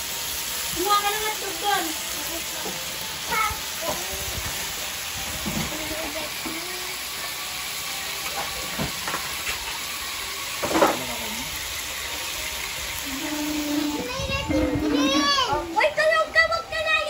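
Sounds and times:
meat sizzling on a grill pan: 0.0 - 17.0
faint voices: 10.5 - 17.0.

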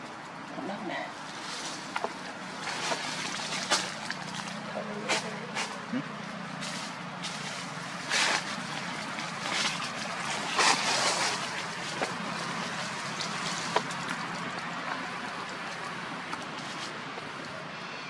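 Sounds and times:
rushing outdoor background noise: 0.0 - 18.0
rustles in dry leaves: 1.1 - 17.4.

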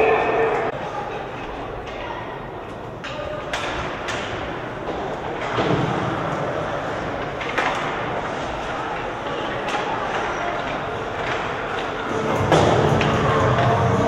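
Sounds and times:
sticks clacking on puck: 3.0 - 5.9, 7.0 - 13.8.

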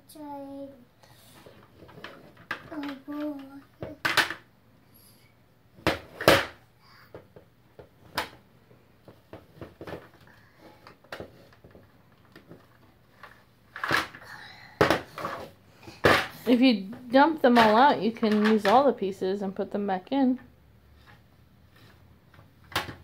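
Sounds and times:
plastic toy blocks clacking: 17.6 - 18.8.

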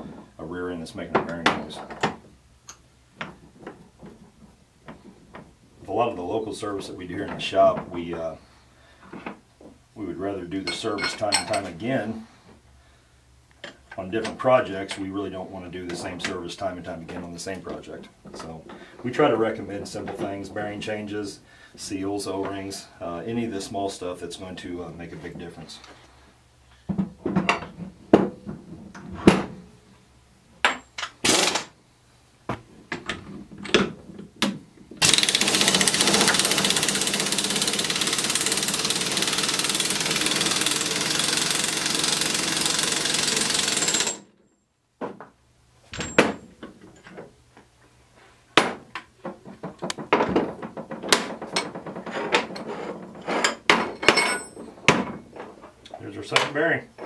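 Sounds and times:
steel tools clinking: 10.7 - 11.7, 52.6 - 54.7
air impact wrench hammering: 30.7 - 31.8, 35.0 - 44.3.

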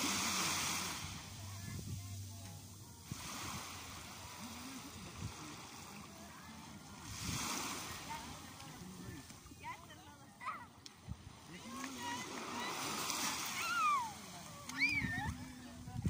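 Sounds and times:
faint voices: 0.0 - 16.0
small waves breaking on sand: 0.0 - 16.0.

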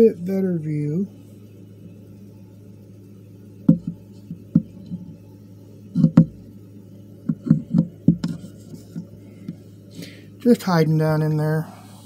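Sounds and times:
low steady hum: 0.0 - 12.0
dull knocks and bumps: 3.7 - 5.1, 6.0 - 6.4, 7.3 - 9.1.

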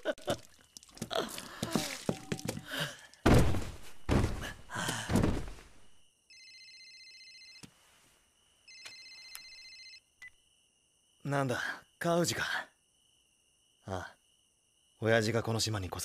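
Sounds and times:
phone ringing electronically: 6.3 - 7.6, 8.7 - 10.0.

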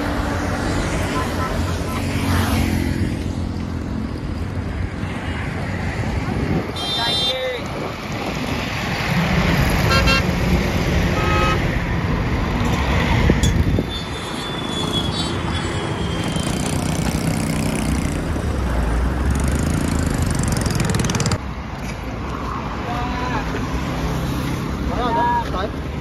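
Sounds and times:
highway traffic passing: 0.0 - 26.0.

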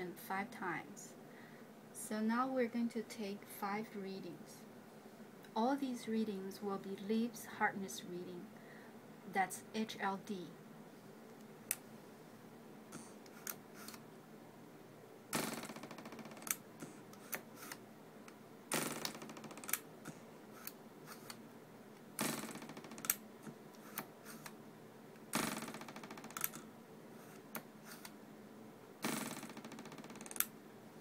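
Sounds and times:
rapid fine clicking: 18.7 - 21.4, 29.0 - 30.5.

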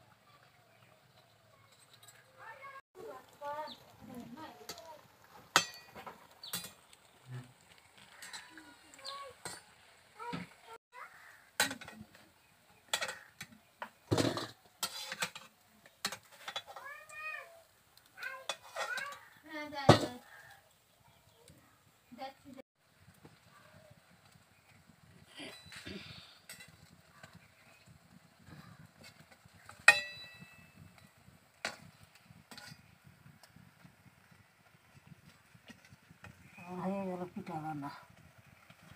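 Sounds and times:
metal spoon clanking on pots: 4.6 - 4.9, 5.5 - 7.0, 8.0 - 9.8, 11.1 - 12.2, 12.8 - 17.0, 18.4 - 20.3, 26.4 - 27.5, 29.0 - 33.0.

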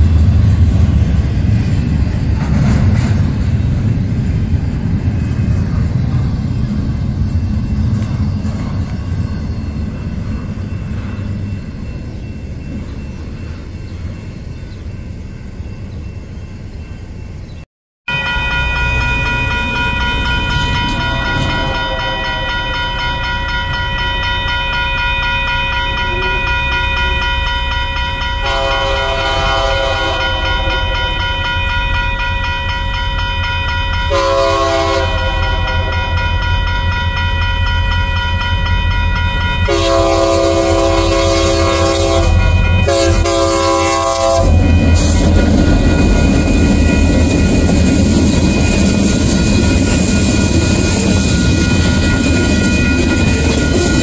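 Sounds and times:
locomotive engines and wheels rumbling: 0.0 - 54.0
railroad crossing bell ringing: 0.0 - 54.0
train horn blasts: 28.4 - 31.3, 34.1 - 36.3, 39.6 - 45.4.

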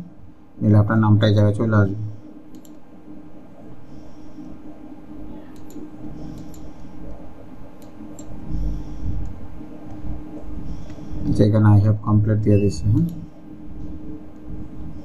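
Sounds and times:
low electrical hum: 0.0 - 15.0
computer mouse clicks: 2.5 - 2.8, 5.4 - 7.2, 7.8 - 10.0.

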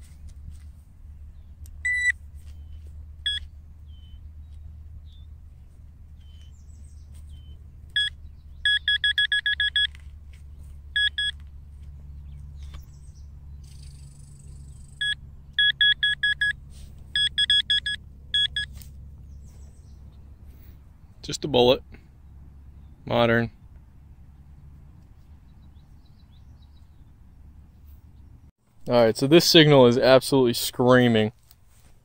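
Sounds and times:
metal detector beeping: 1.8 - 2.2, 3.2 - 4.2, 7.4 - 10.0, 10.9 - 11.4, 15.0 - 18.9.

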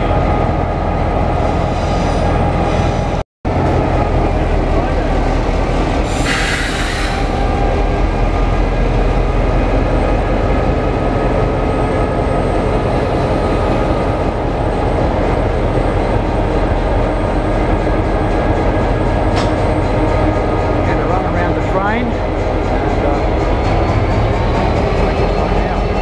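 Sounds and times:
diesel locomotive engine: 0.0 - 26.0.

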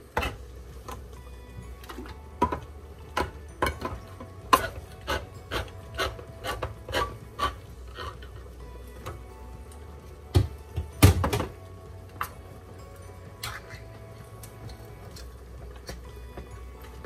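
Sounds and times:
can opener grinding: 1.9 - 8.5.

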